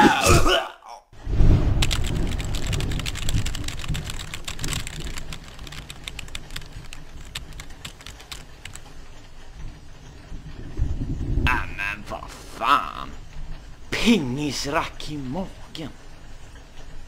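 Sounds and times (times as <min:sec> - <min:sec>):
low rumble: 0:01.2 - 0:06.8, 0:09.7 - 0:12.4.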